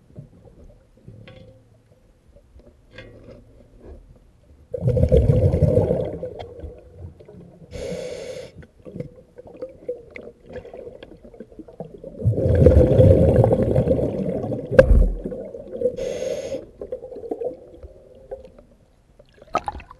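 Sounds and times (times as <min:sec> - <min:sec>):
faint steady hum: 0:00.0 - 0:19.9
exhaled bubbles rumbling: 0:04.7 - 0:07.6, 0:09.0 - 0:16.0
regulator breath hiss: 0:07.7 - 0:08.6, 0:16.0 - 0:16.7.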